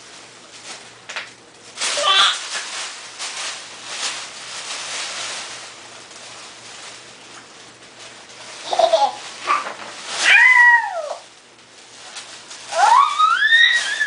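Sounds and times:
tissue paper rustling: 0.0 - 14.0
toddler squealing: 12.8 - 14.0.

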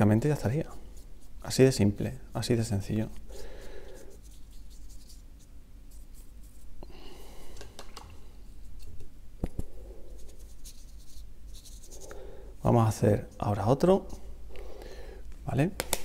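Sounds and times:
paintbrush swishing on paper: 0.6 - 1.5, 3.0 - 6.8, 10.1 - 12.1.

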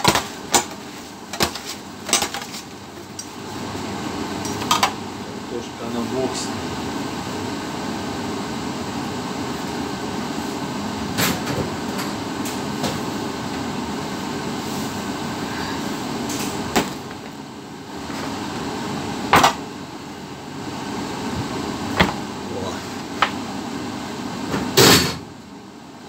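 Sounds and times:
knocks and clacks of kitchen work: 0.0 - 2.7, 4.4 - 5.0, 19.3 - 19.6
steady machinery hum: 0.0 - 26.0.

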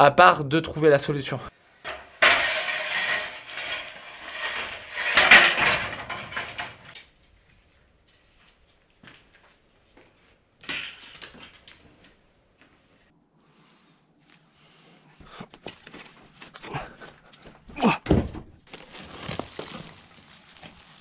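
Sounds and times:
rubble clattering and scraping: 1.8 - 12.3.

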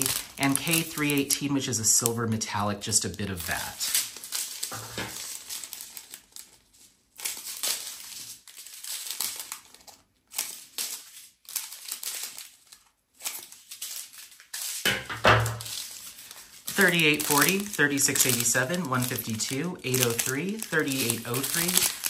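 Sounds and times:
plastic bags crinkling: 0.0 - 22.0.

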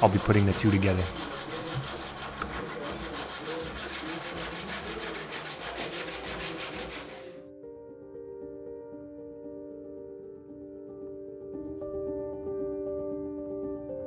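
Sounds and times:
handsaw cutting wood: 0.0 - 7.4.

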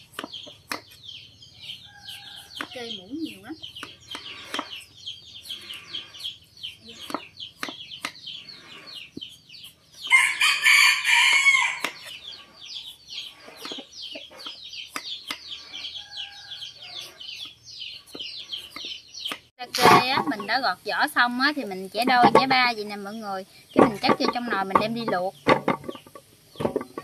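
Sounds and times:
birds chirping: 0.0 - 27.0
rooster crowing: 10.1 - 11.9.

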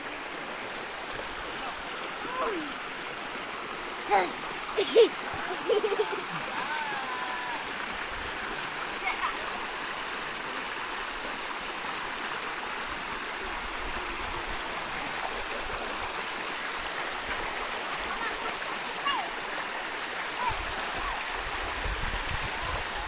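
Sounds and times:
rocky stream rushing: 0.0 - 23.0.

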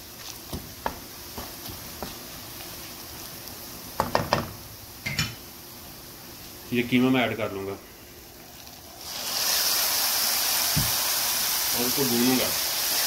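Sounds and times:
onions sizzling in oil: 0.0 - 13.0
wooden spatula knocking on wok: 4.0 - 4.6.

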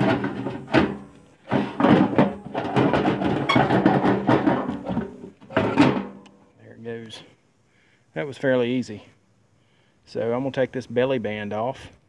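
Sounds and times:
metal knocking and rattling in housing: 0.0 - 6.2.

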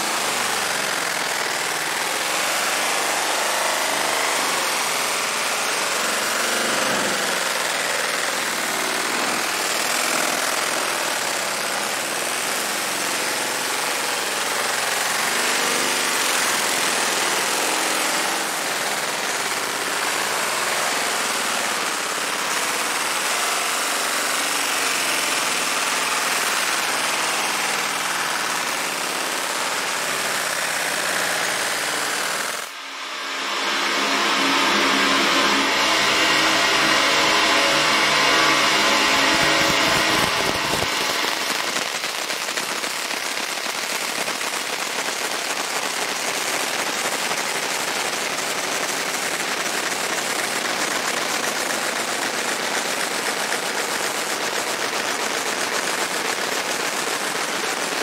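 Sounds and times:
low pitched hum: 32.8 - 41.8
laser engraving crackling buzz: 33.1 - 44.6.

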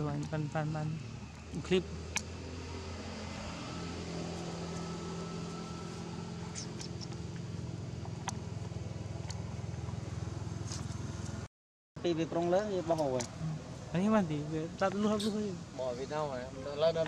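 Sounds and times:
engine humming: 0.0 - 11.5.

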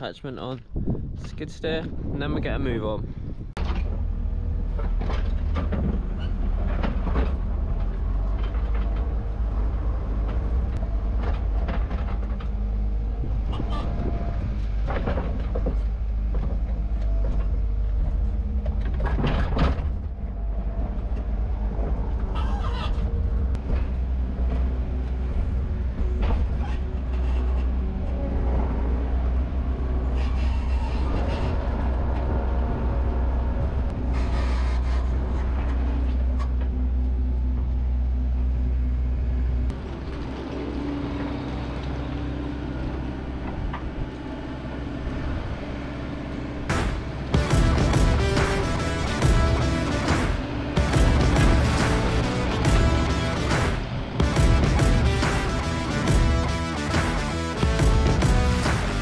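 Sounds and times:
loader engine running: 3.3 - 59.0
knocks and clanks of loader arms: 3.6 - 9.2, 10.2 - 12.6, 14.6 - 21.9.

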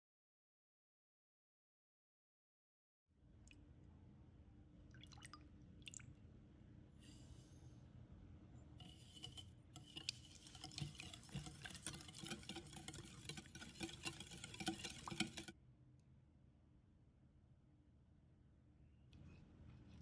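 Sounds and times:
whisk clicking against glass bowl: 8.8 - 15.5.

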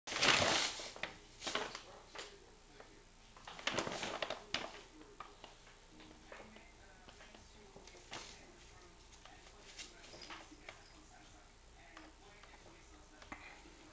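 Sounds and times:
paper bag rustling and crinkling: 0.1 - 2.3, 3.4 - 5.6.

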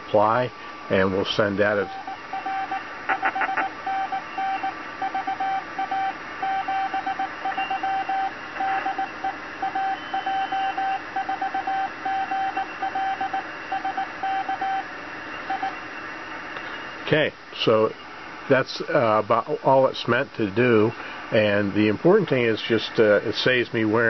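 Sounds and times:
morse code tone: 1.8 - 14.8.

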